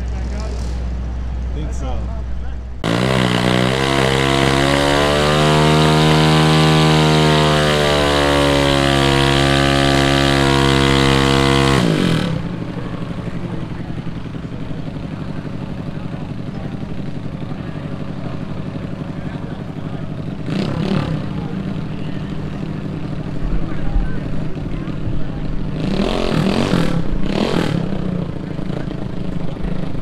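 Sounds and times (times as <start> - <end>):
engines idling: 0.0 - 30.0
motorcycle engine revving high: 2.8 - 30.0.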